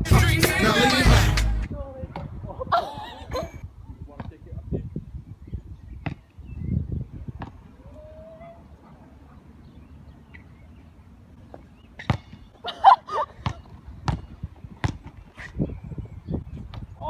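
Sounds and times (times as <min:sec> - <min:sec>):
basketball bouncing on hard court: 0:13.4 - 0:15.2.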